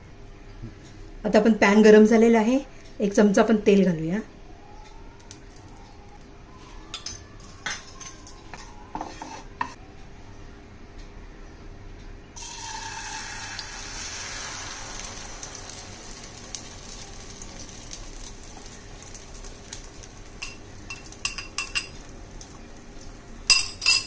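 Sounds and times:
metal spoon scraping glass bowl: 6.9s - 9.8s
egg sizzling in hot oil: 12.4s - 23.0s.

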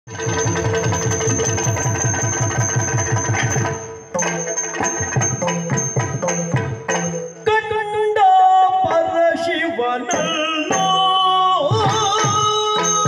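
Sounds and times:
drum strokes: 0.1s - 7.8s
man singing: 7.4s - 13.0s.

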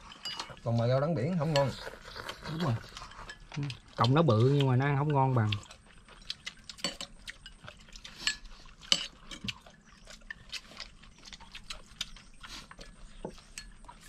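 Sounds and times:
utensils clinking against dishes: 0.0s - 5.7s, 6.7s - 9.7s.

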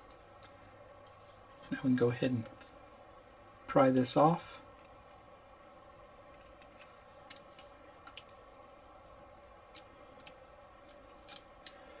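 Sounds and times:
faint steady hum: 0.0s - 12.0s
small plastic parts clicking: 6.3s - 11.8s.

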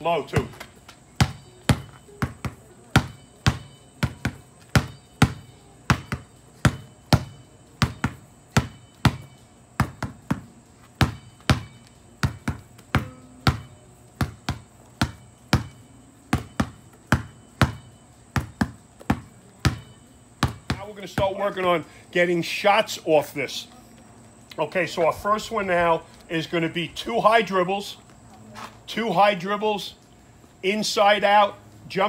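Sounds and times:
basketball bouncing on asphalt: 0.0s - 21.8s.

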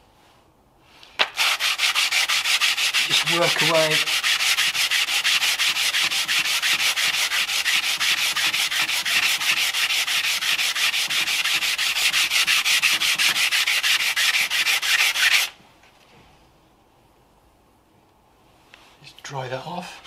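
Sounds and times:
wet sanding scratching: 1.2s - 15.5s.

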